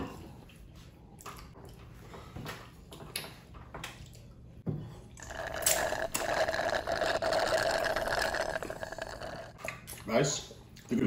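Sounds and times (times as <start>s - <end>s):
wet sticky eating sounds: 5.2s - 10.1s.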